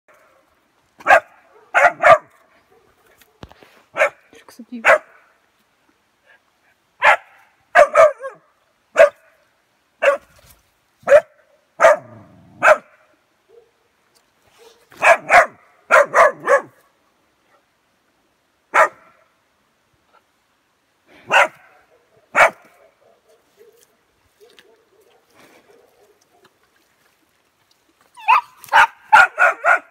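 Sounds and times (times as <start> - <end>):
puppy barking: 1.0 - 4.2, 4.8 - 5.2, 7.0 - 8.4, 9.0 - 9.3, 10.0 - 10.4, 11.0 - 13.7, 14.6 - 16.8, 18.7 - 19.2, 21.3 - 26.5, 28.2 - 29.9.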